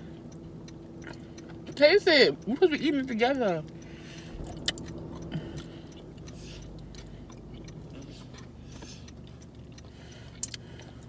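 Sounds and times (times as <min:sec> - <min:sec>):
person chewing food: 0:00.0 - 0:01.8, 0:03.6 - 0:11.0
low hum inside car: 0:00.0 - 0:11.0.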